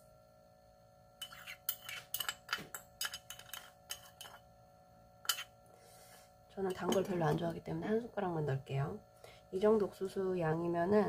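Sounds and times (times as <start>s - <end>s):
utensils clicking and clinking: 1.2s - 4.4s.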